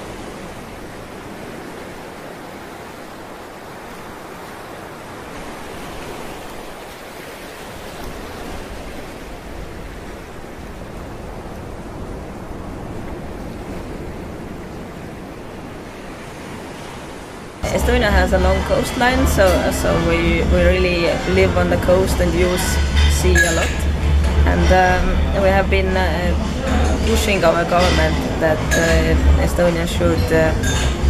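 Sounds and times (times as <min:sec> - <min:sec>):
water rushing: 0:00.0 - 0:31.0
low rumble: 0:17.6 - 0:31.0.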